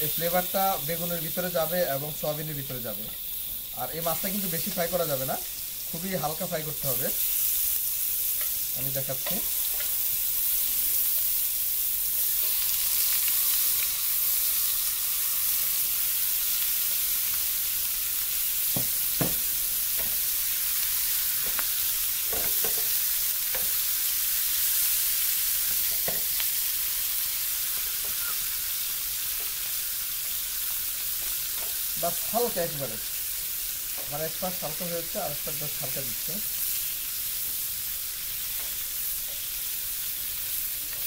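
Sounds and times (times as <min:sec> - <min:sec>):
fish sizzling in frying pan: 0:00.0 - 0:41.0.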